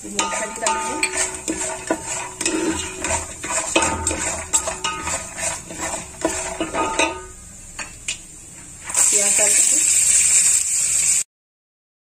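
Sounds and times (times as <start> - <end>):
ladle scraping a metal pot: 0.0 - 7.9
nuts frying in oil: 0.0 - 11.3.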